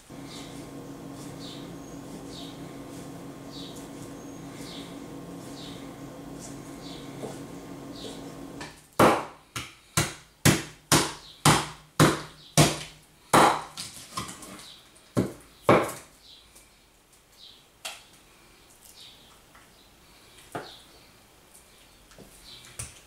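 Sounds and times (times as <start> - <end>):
cleaver chopping on wooden block: 8.6 - 14.3.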